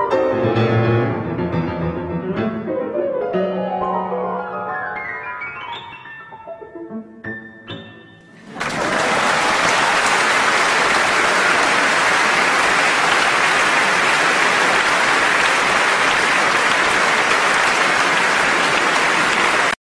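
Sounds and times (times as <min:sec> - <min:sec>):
piano notes: 0:00.0 - 0:08.7
audience applause: 0:08.4 - 0:19.8.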